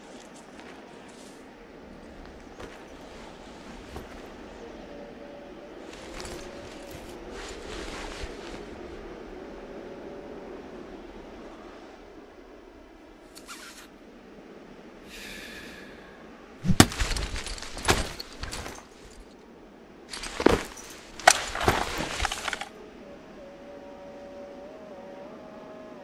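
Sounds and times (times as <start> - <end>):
sharp cracks and crashes: 16.6 - 18.9.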